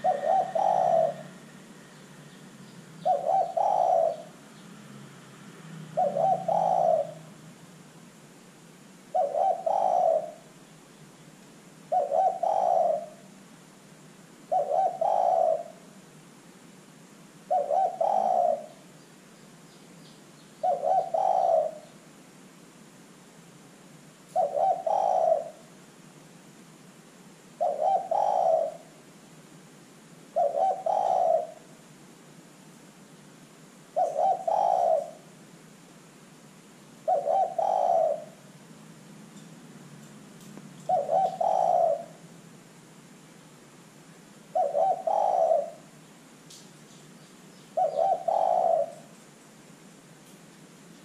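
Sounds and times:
dove cooing: 0.0s - 2.4s, 3.0s - 4.5s, 5.8s - 7.4s, 9.1s - 10.6s, 11.9s - 13.4s, 14.4s - 16.0s, 17.5s - 18.9s, 20.6s - 22.0s, 24.3s - 25.8s, 27.6s - 29.0s, 30.3s - 31.7s, 33.9s - 35.3s, 37.0s - 38.7s, 40.8s - 42.3s, 44.5s - 46.0s, 47.7s - 49.2s.

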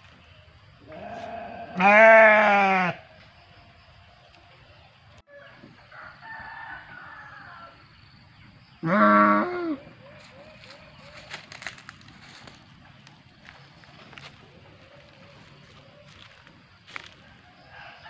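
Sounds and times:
goat bleating: 0.9s - 3.0s.

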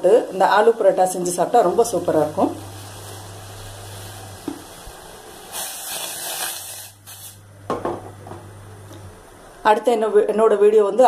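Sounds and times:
milk tea boiling in a saucepan: 0.0s - 7.2s.

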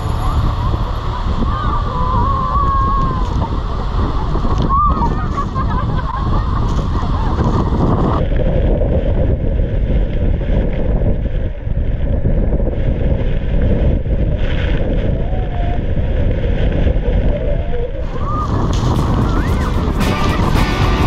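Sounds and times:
waterfall roaring: 0.0s - 8.2s, 18.0s - 21.0s
wind buffeting microphone: 0.0s - 21.0s.

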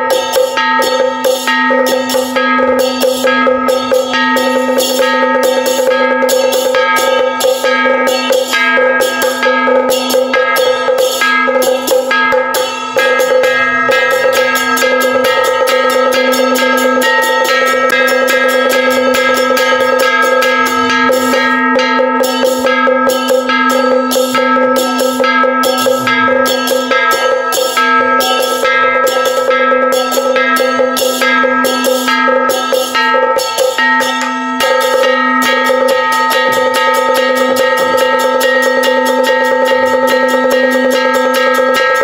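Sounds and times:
held pitched tone: 0.0s - 30.8s
fast beat on small percussion: 0.0s - 42.0s.

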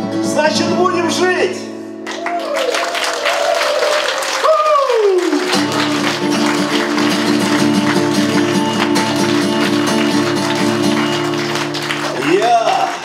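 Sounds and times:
acoustic guitar strumming: 0.0s - 2.1s, 5.5s - 12.2s
hand claps: 2.1s - 13.0s.

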